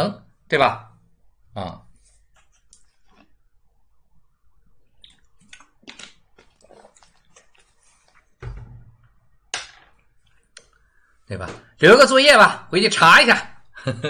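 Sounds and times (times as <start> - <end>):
person gulping water: 5.0 - 9.0
dull thump: 8.4 - 9.1.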